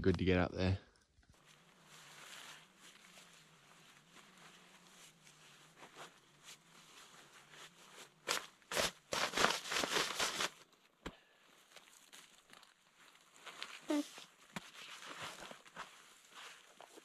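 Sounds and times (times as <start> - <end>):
faint rustling: 1.3 - 8.7
backpack crunching on frosty scrub: 1.4 - 17.0.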